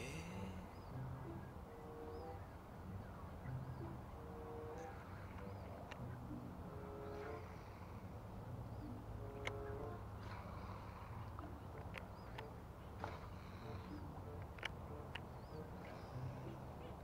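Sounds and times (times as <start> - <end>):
birds calling: 0.0 - 17.0
faint clicks: 9.3 - 9.6, 11.2 - 16.0.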